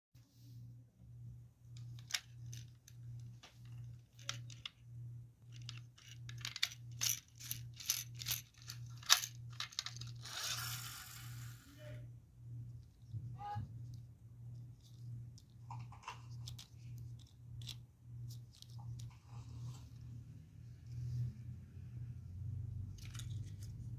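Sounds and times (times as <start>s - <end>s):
plastic toy clicks and rattles: 1.8s - 4.8s, 5.4s - 11.0s, 15.4s - 19.2s, 22.9s - 23.9s
friction motor whirring: 10.1s - 11.7s.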